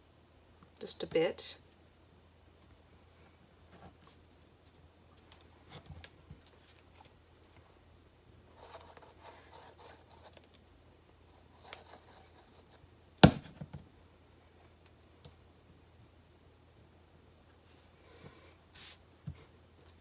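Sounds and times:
faint rustling and scraping: 3.0 - 10.6.

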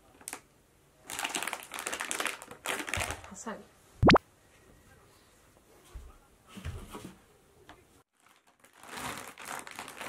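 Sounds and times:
plastic bag rustling: 1.1 - 3.3, 8.1 - 10.0.

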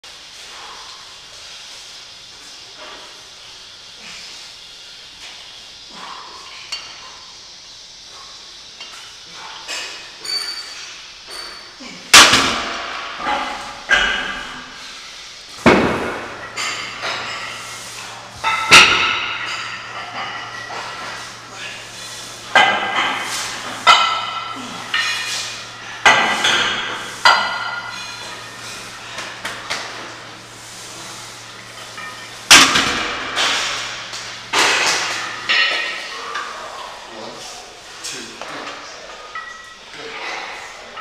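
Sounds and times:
steady low hum: 0.0 - 41.0
metal weight plates clanking: 18.4 - 29.4.

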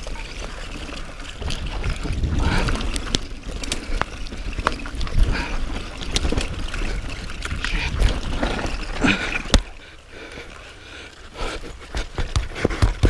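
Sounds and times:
wind rumbling on microphone: 0.0 - 9.8
bike rattling over rocks: 0.0 - 13.0.

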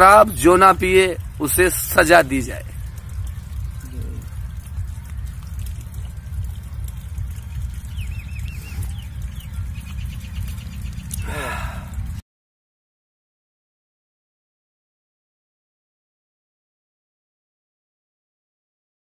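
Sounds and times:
wind rumble on microphone: 0.0 - 12.2
quick run of ticks: 2.8 - 12.2.

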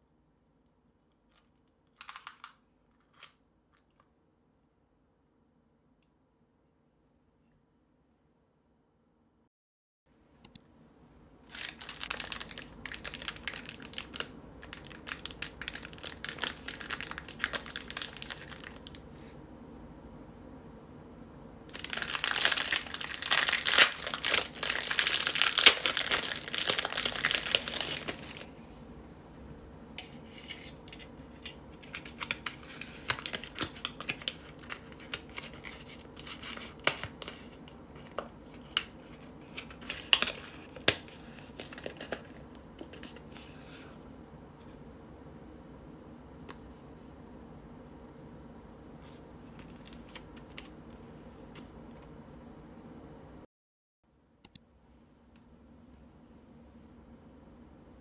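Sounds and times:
plastic bag crinkling: 11.5 - 19.0, 21.7 - 28.5.

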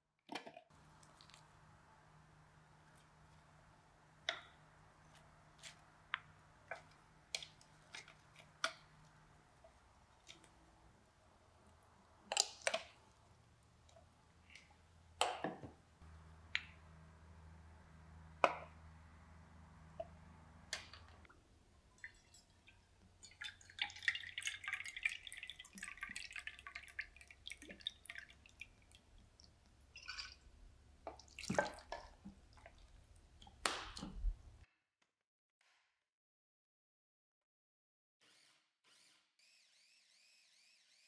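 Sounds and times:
water dripping and splashing: 0.8 - 1.6, 22.0 - 30.4, 31.1 - 34.2.

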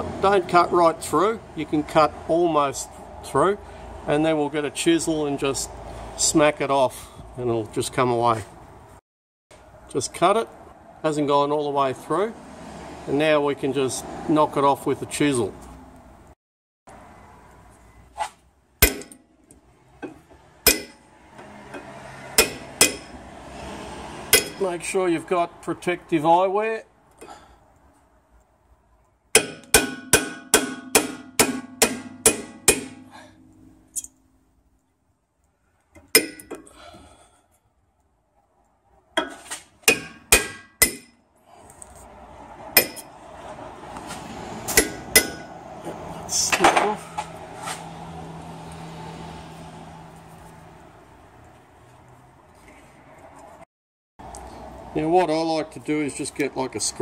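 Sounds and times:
hammer striking metal chisel: 18.8 - 19.3, 20.0 - 21.0, 21.8 - 23.2, 24.3 - 24.6, 29.4 - 34.2, 36.1 - 36.7, 39.2 - 41.2, 42.8 - 43.1, 44.7 - 45.5.

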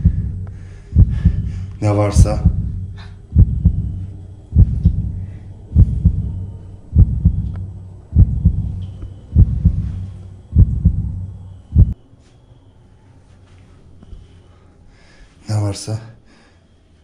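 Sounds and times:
deep heartbeat thumps: 0.0 - 12.0
low hum: 0.0 - 14.7.

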